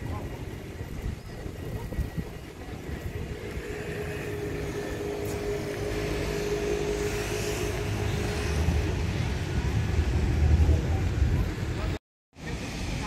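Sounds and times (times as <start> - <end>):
motor vehicle humming: 1.8 - 12.0.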